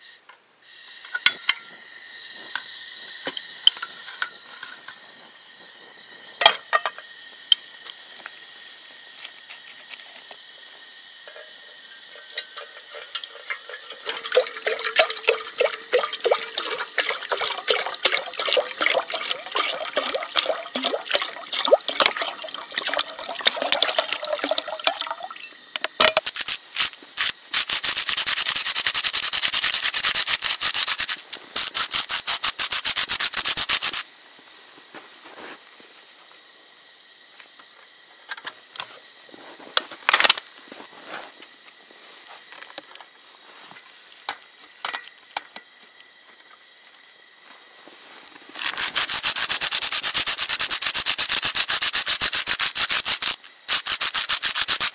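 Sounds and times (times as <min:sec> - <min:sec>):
water pouring into metal pot: 0:12.1 - 0:25.4
loud hiss with crackling: 0:26.2 - 0:34.6, 0:48.0 - 0:54.9.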